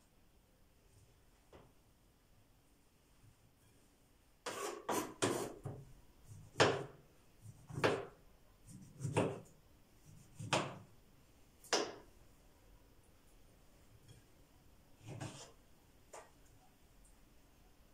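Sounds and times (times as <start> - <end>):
knife cutting on board: 4.5 - 5.7, 8.8 - 9.5, 15.0 - 15.6.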